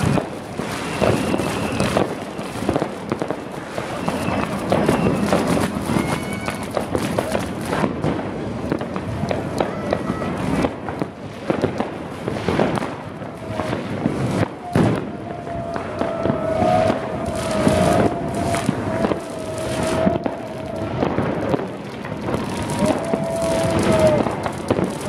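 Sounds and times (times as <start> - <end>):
firecrackers banging: 0.0 - 25.0
people shouting: 3.8 - 7.4, 9.0 - 10.7, 14.7 - 25.0.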